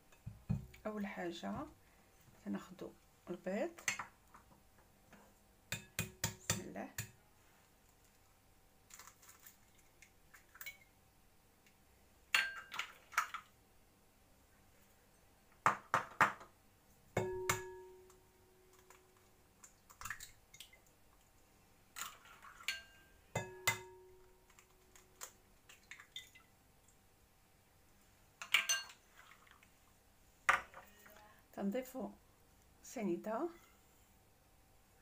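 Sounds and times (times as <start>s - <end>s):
glass bowl ringing: 17.2s - 18.2s, 22.7s - 24.4s.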